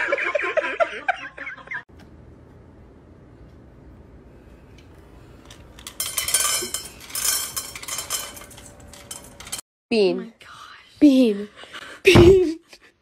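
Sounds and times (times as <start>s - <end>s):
kibble rattling into steel bowl: 5.8s - 9.6s.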